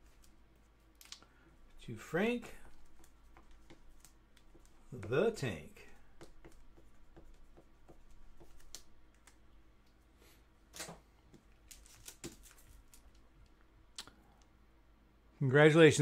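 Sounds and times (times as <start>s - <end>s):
plastic clicks and crinkles: 1.0s - 1.3s
marker writing on plastic: 1.8s - 9.0s.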